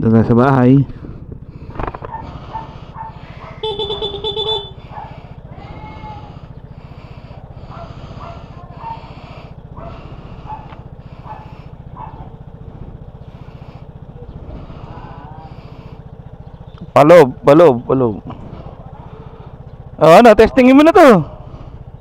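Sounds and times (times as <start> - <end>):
scooter engine idling: 0.1 - 22.0
faint short calls: 1.7 - 16.9.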